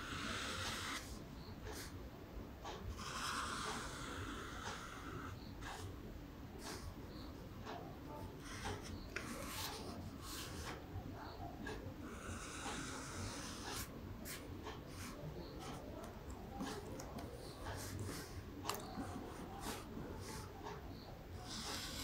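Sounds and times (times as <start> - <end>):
marker drawing on paper: 0.0 - 1.9, 2.7 - 5.9, 6.6 - 6.9, 8.4 - 22.0.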